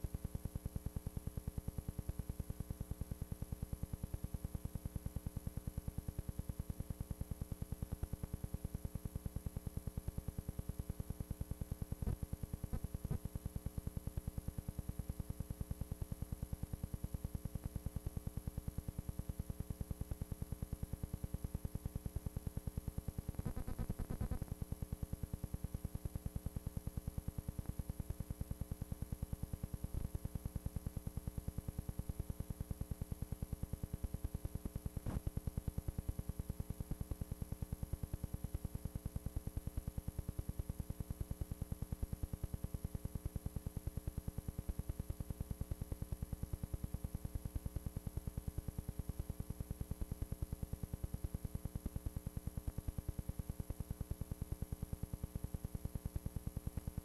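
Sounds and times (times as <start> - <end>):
faint high whine: 23.2 - 24.6.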